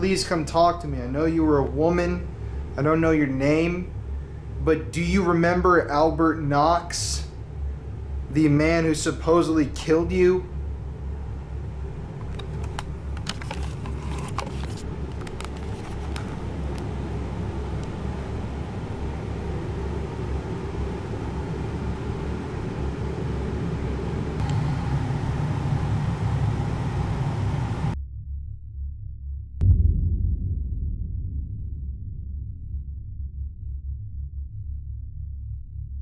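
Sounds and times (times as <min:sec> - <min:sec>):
microphone rumble and hiss: 0:00.0 - 0:28.0.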